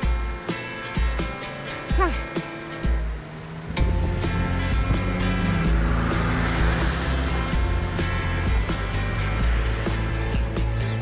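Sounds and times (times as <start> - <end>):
background music with bass beat: 0.0 - 11.0.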